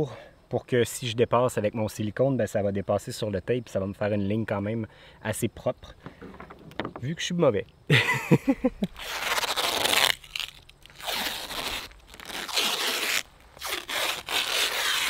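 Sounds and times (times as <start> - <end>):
tape ripping off roll: 8.8 - 15.0.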